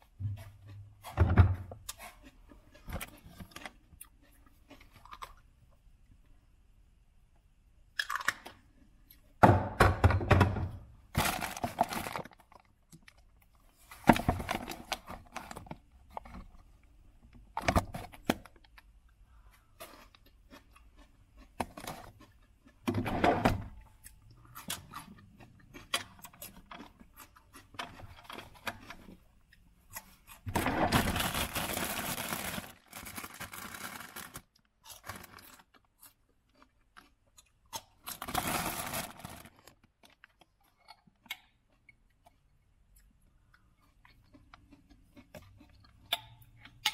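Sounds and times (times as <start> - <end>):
plastic bags rustling: 11.1 - 12.7, 30.5 - 35.7, 38.1 - 39.8
crunching raw vegetables: 23.7 - 46.9.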